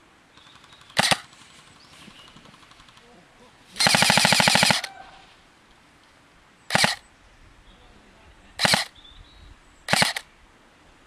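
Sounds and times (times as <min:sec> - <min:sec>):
airsoft gun bursts: 0:00.5 - 0:01.4, 0:03.8 - 0:04.9, 0:06.7 - 0:07.0, 0:08.6 - 0:08.9, 0:09.9 - 0:10.3.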